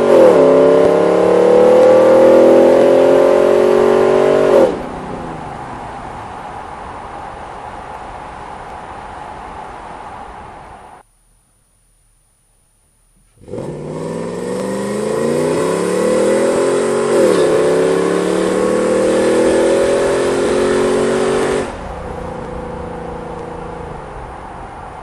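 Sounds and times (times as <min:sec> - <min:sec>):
engine accelerating hard: 0:00.0 - 0:07.5, 0:13.4 - 0:25.0
exhaust drone: 0:00.0 - 0:11.0, 0:13.3 - 0:25.0.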